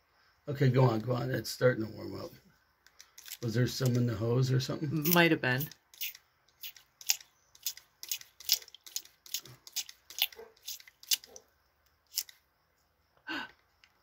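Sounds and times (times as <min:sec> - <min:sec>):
spray bottle squirting water: 0:05.0 - 0:11.4.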